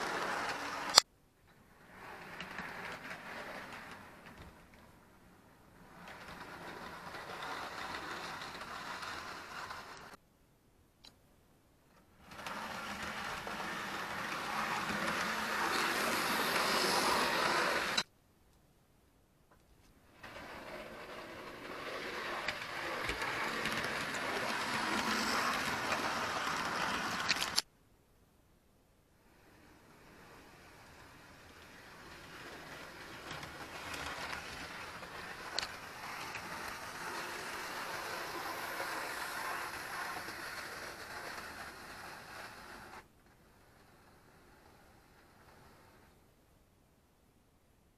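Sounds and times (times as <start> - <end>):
model train whirring on track: 0.0 - 1.0, 1.6 - 10.2, 12.2 - 18.1, 20.0 - 27.6, 29.2 - 46.4.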